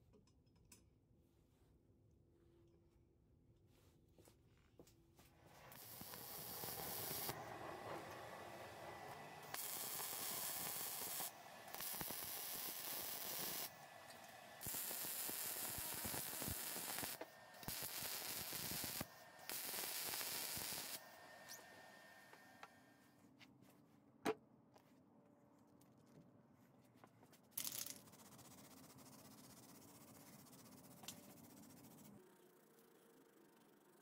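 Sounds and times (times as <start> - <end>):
welder arc crackling and sizzling: 5.5 - 22.5.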